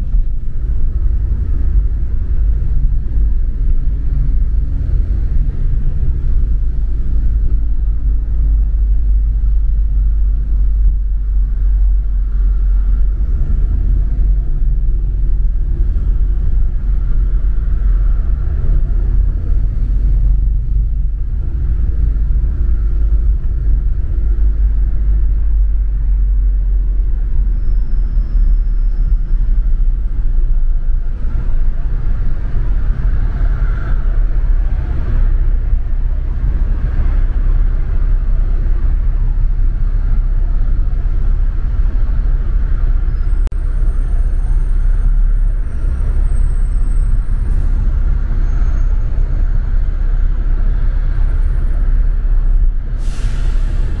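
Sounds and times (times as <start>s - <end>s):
bus engine and road rumble: 0.0s - 54.0s.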